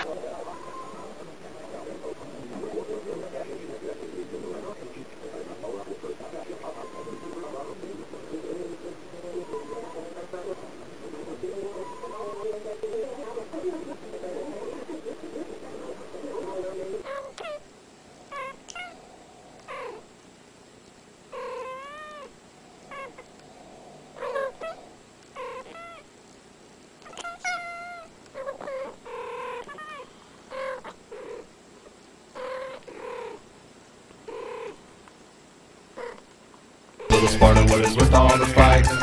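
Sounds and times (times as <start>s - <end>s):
cats meowing and chirruping: 18.3s - 19.0s, 21.3s - 23.4s, 27.0s - 31.5s.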